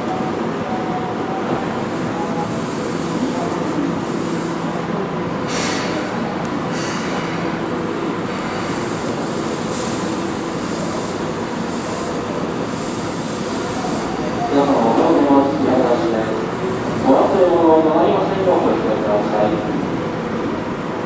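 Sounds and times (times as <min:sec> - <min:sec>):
electric train slowing to a stop: 0:00.0 - 0:17.4
short air hisses: 0:05.4 - 0:07.6, 0:08.3 - 0:14.1.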